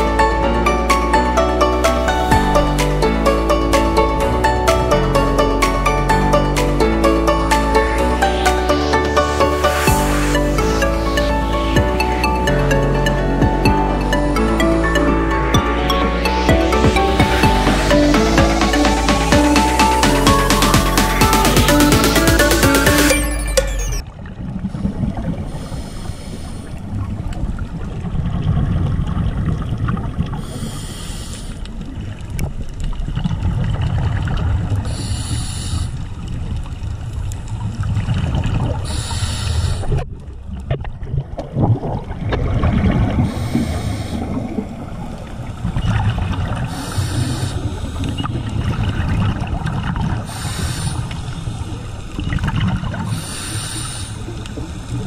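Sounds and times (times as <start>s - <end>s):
low water rumble: 0.0s - 22.6s, 23.2s - 55.0s
diver breathing through regulator: 24.8s - 26.9s, 30.4s - 31.7s, 34.8s - 36.0s, 38.8s - 40.0s, 43.2s - 44.7s, 46.6s - 48.6s, 50.2s - 51.9s, 53.0s - 55.0s
rushing exhaled bubbles: 39.8s - 55.0s.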